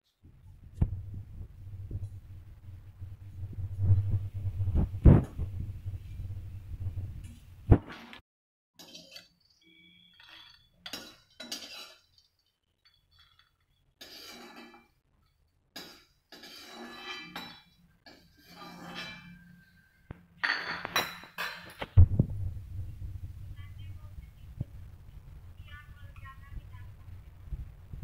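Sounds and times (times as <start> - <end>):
metal spoon scraping in pan: 8.8 - 20.0.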